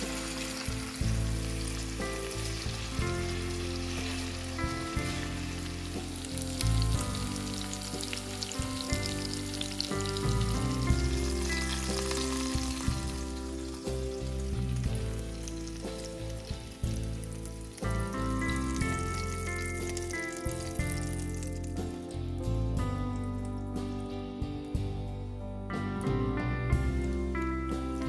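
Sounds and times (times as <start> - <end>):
food sizzling in a pan: 0.0 - 22.4
background music: 0.0 - 28.0.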